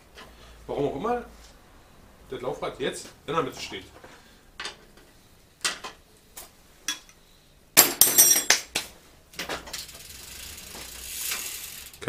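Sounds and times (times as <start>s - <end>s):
metal tools clinking: 7.9s - 8.6s.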